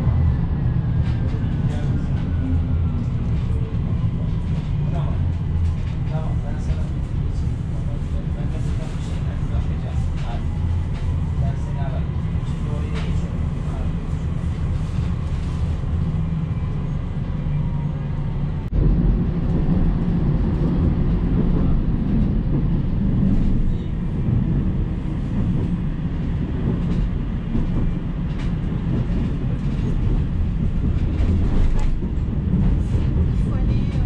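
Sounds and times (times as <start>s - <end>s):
tram wheels rumbling on rails: 0.0s - 34.0s.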